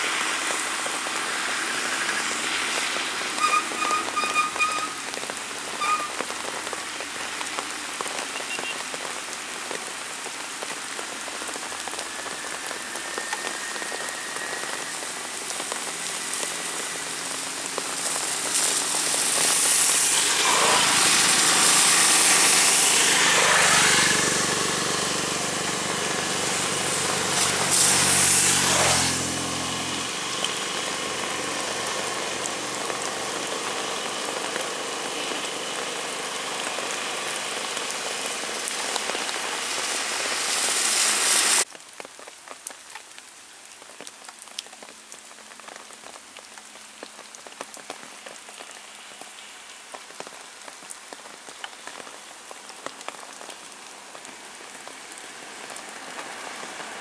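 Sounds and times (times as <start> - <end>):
rain on paved road: 0.0 - 57.0
motorcycle passing: 14.8 - 34.4.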